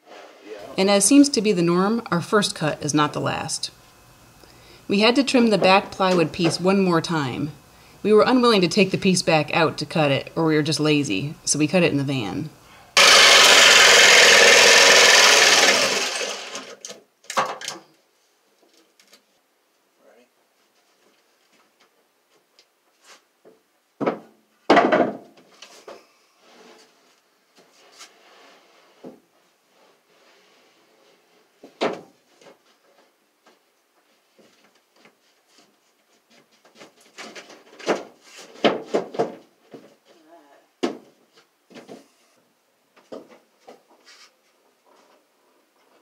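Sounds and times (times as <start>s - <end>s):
jigsaw cutting plywood: 13.0s - 16.9s.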